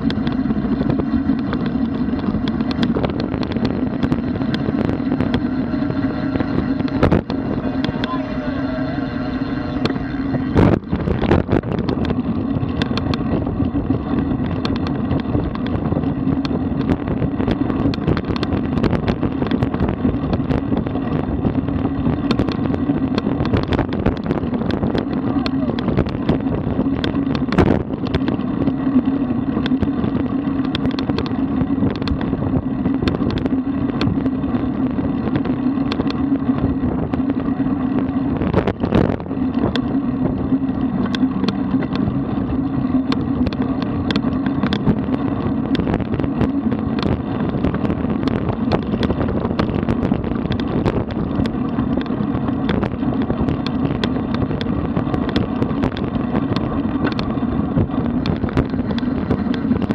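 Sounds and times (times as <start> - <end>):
bicycle clicks and rattles: 0.0 - 8.2, 9.3 - 59.9
bicycle riding hum: 0.0 - 59.9.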